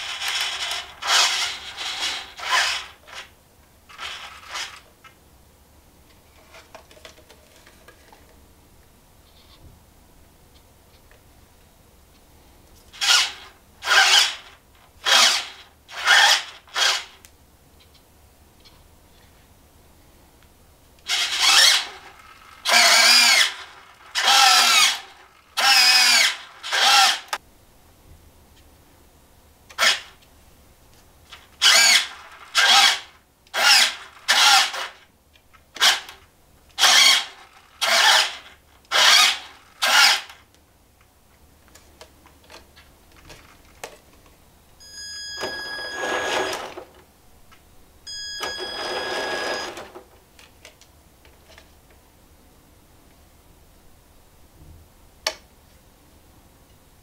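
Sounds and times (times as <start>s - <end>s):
electric motor whirring: 0.0s - 2.9s, 21.1s - 27.3s, 45.4s - 46.8s.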